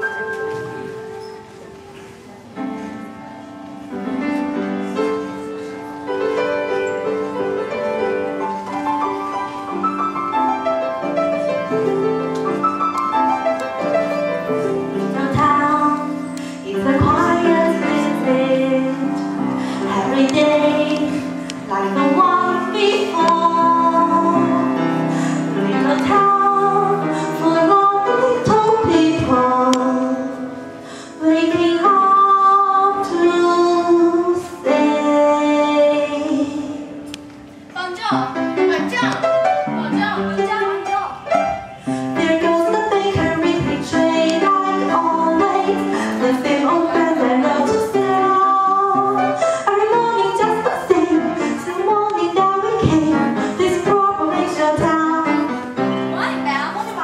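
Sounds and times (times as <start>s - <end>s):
piano-led backing music: 0.0s - 57.0s
girl singing into microphone: 14.6s - 39.2s, 42.1s - 57.0s.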